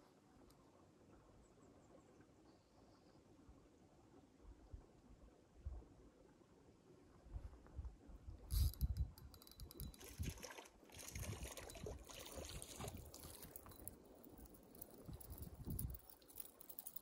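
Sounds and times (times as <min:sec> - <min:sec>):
water splashing and trickling: 0:08.5 - 0:17.0.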